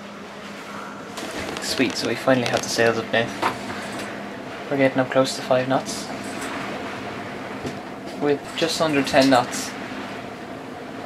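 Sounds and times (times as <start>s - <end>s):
water and wind rushing: 0.0s - 11.0s.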